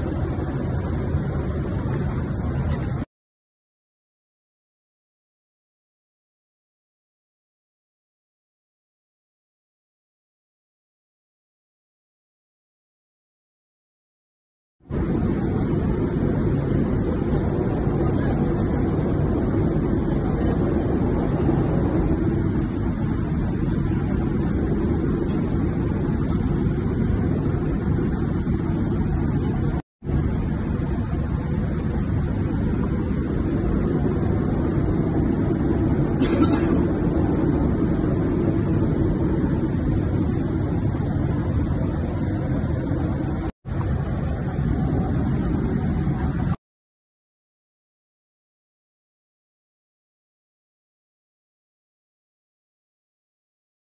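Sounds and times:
airliner cabin engine drone: 0:00.0 - 0:03.1, 0:14.9 - 0:46.6.

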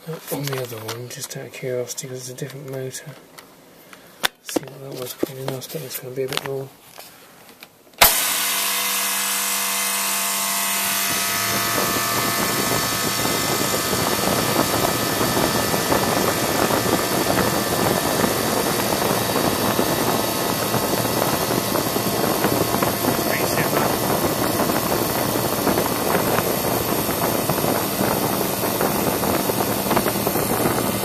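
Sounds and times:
electric fan running: 0:00.0 - 0:01.8, 0:08.0 - 0:31.0.

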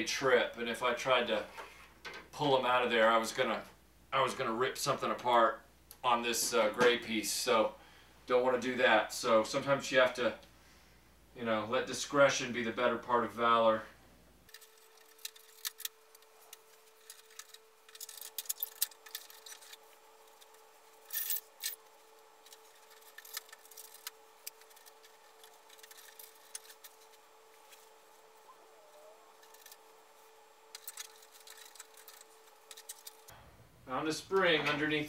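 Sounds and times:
faint steady hum: 0:00.0 - 0:35.0
plastic toy parts clicking: 0:30.8 - 0:33.3.

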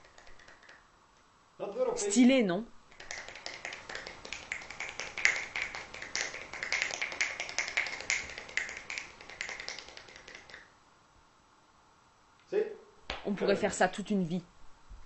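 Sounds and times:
finger whip snaps: 0:00.0 - 0:00.9, 0:02.9 - 0:10.7.

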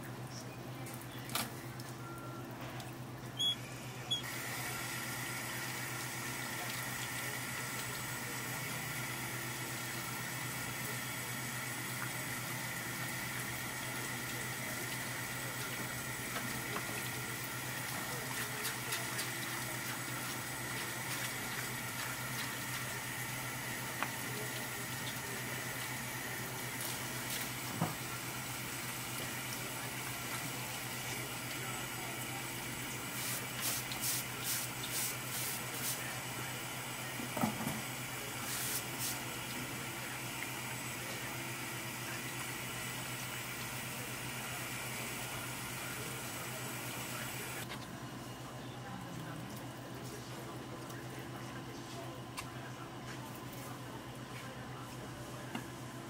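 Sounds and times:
water running from a hose: 0:03.4 - 0:47.7.

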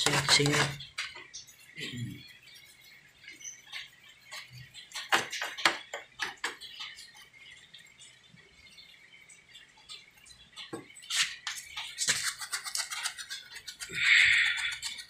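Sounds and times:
stiff brush scrubbing metal: 0:11.1 - 0:15.0.

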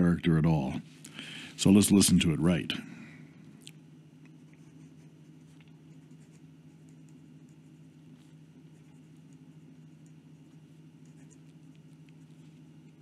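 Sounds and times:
steady low hum: 0:00.0 - 0:13.0
pen nib scratching paper: 0:04.5 - 0:13.0.

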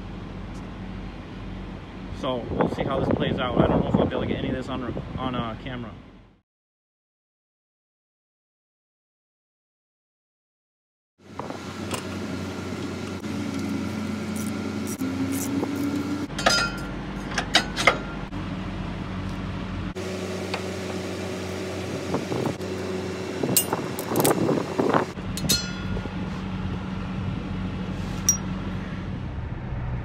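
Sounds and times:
low engine hum: 0:00.0 - 0:06.4, 0:11.2 - 0:30.0
metal tools clinking: 0:16.3 - 0:18.2, 0:25.4 - 0:26.1.

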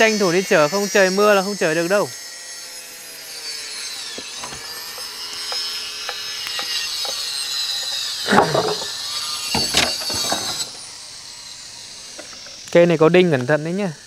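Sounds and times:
electric saw cutting timber: 0:00.0 - 0:14.0.

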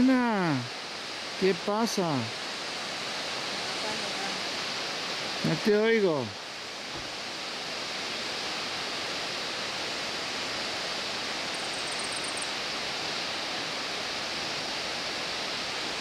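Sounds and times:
waterfall rushing: 0:00.0 - 0:16.0
high trill of chirps: 0:11.5 - 0:12.5.

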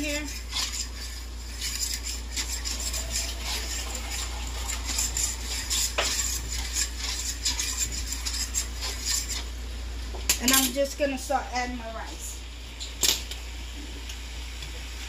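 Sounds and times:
utensil scraping a frying pan: 0:00.0 - 0:09.6.

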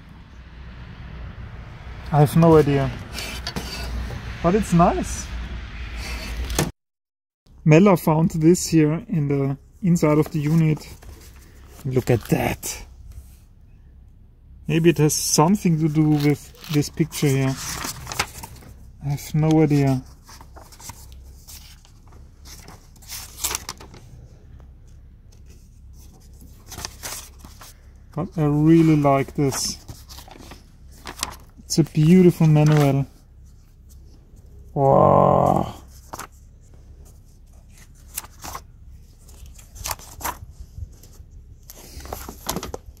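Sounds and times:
low steady rumble: 0:07.5 - 0:34.8, 0:35.7 - 0:43.0
paper pages rustling: 0:09.9 - 0:13.4, 0:15.2 - 0:34.2, 0:35.8 - 0:43.0.

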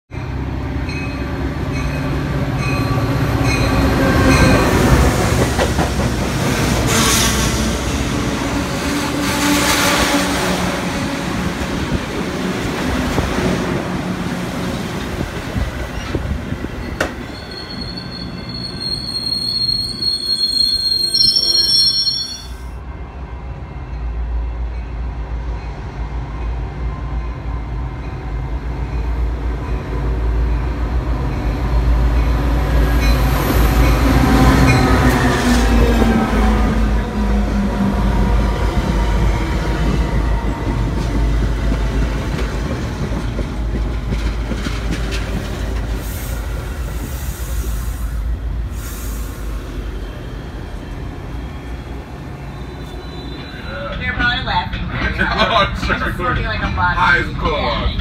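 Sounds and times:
train wheels rolling on rails: 0:00.9 - 0:22.2, 0:27.8 - 0:58.0
high piercing wheel squeal: 0:16.8 - 0:22.7, 0:51.4 - 0:54.0.

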